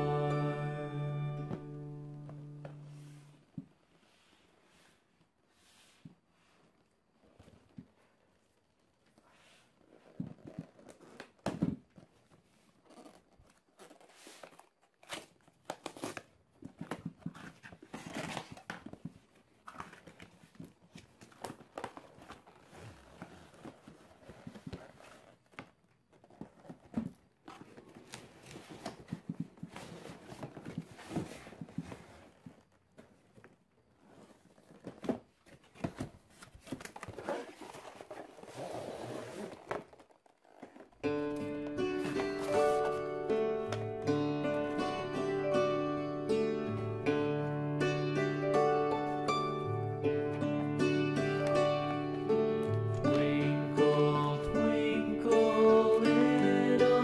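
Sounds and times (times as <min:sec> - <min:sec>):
tape and cardboard tearing: 0:12.9 - 0:16.4.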